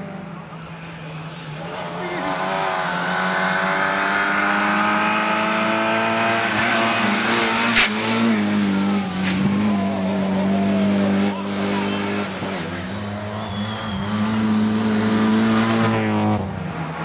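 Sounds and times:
rally car engine at high revs: 1.5 - 17.0
sharp crack: 7.7 - 8.2, 9.1 - 9.6.

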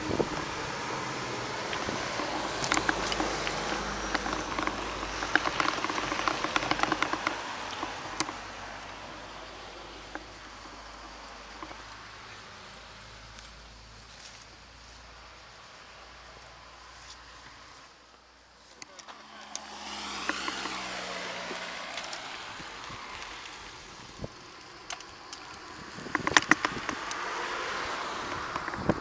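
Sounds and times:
scattered clicks: 0.0 - 12.4, 18.7 - 29.0
bicycle tyres crunching gravel: 0.0 - 29.0
faint outdoor noise: 0.0 - 29.0.

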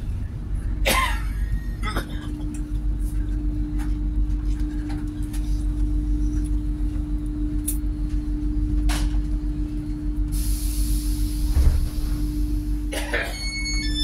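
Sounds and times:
train interior rumble and hum: 0.0 - 14.0
hiss of escaping air: 10.3 - 12.9
low thump: 11.5 - 12.3.

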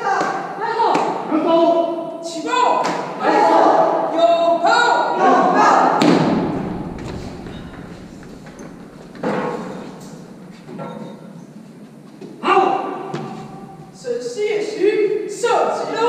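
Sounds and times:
heavy echoing thud: 5.9 - 11.3.

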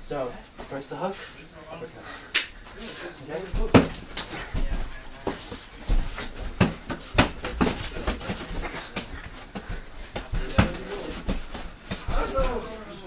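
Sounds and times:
boxing gloves punching: 5.9 - 12.7.

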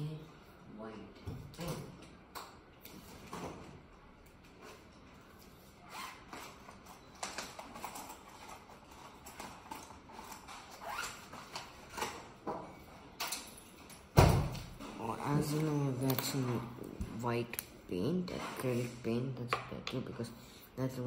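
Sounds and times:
art supplies scraping and clicking: 2.8 - 14.1, 14.8 - 20.2.

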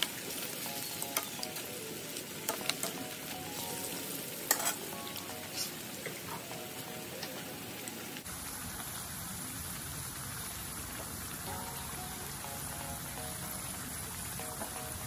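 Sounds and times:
faint background music: 0.0 - 8.3, 11.5 - 15.0
food deep-frying in oil: 0.0 - 15.0.

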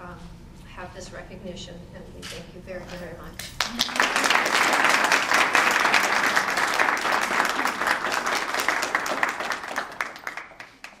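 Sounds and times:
small group clapping: 3.4 - 11.0.

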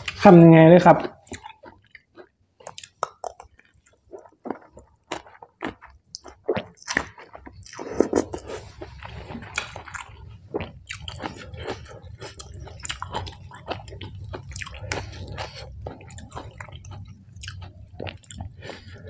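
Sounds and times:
wet chewing and mouth smacks: 1.0 - 19.0.

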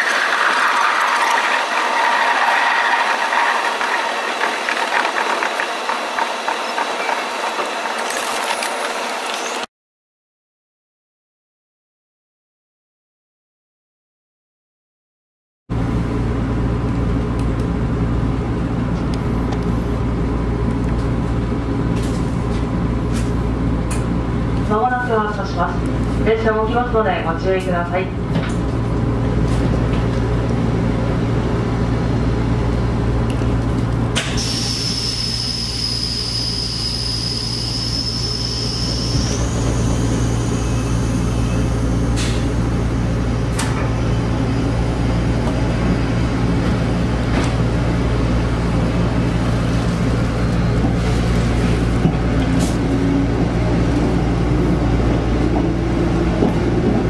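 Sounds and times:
electric train running: 0.0 - 9.6
high steady whistle: 34.4 - 42.0.

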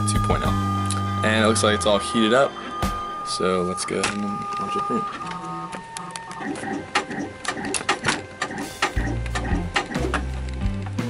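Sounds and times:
background music with bass notes: 0.0 - 3.8, 8.5 - 11.0.

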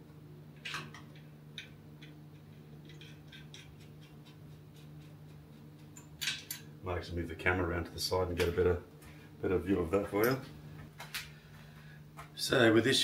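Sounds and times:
steady low hum: 0.0 - 13.0
metal bolts and nuts clicking: 1.6 - 4.1, 6.0 - 6.7.

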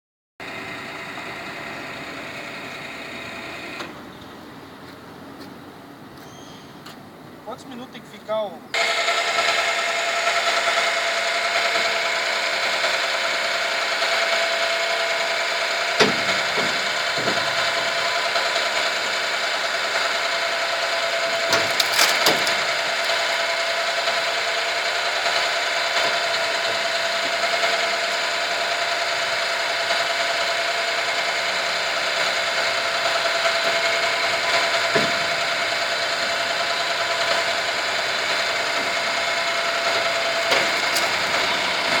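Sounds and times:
electric motor whining: 8.8 - 42.0.

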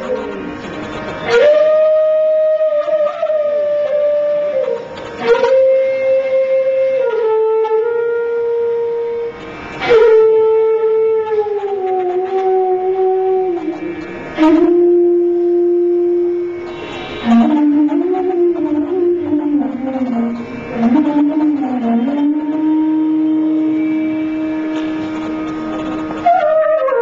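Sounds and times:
bamboo flute playing long notes: 0.0 - 27.0.

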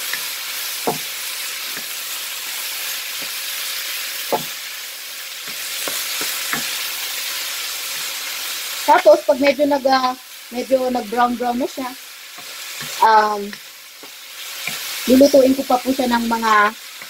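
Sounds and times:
meat and onion sizzling in oil: 0.0 - 17.0.

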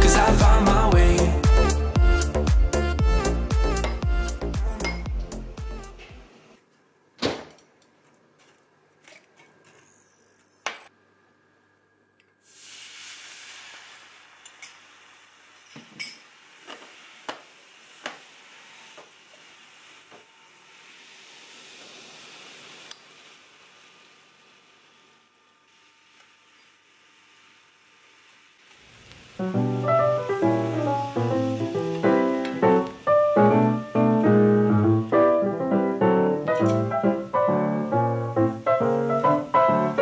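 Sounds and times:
sauce bubbling and sizzling: 12.4 - 25.2, 28.0 - 40.0.

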